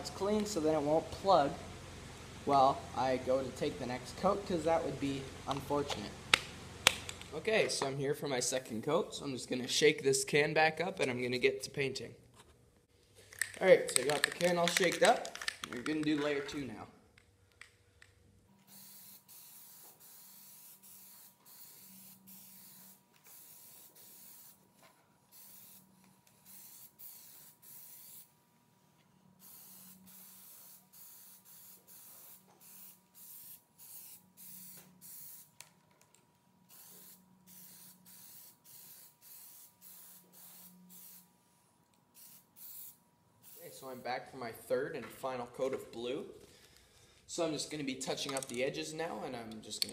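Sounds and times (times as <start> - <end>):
aerosol can spraying bursts: 18.6 - 24.6, 25.3 - 28.3, 29.4 - 35.6, 36.7 - 41.3, 42.1 - 43.9.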